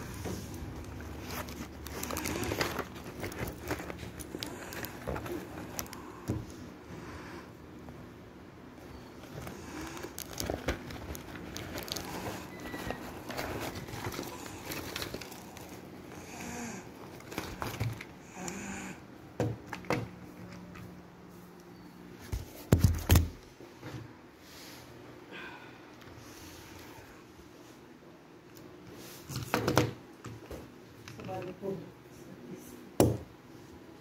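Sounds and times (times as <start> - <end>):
plastic mailer bag crinkling: 0.0 - 6.3, 8.9 - 16.3, 17.0 - 18.2.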